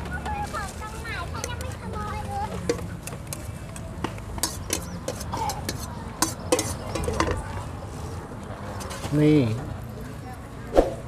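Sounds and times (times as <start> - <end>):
metal spoon scraping steel bowl: 4.4 - 7.4.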